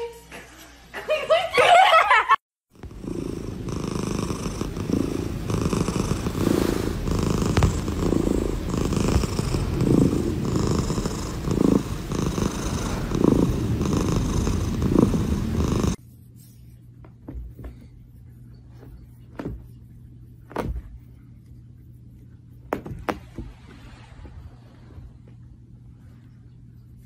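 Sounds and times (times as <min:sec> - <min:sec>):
cat purring: 0:02.7 - 0:16.0.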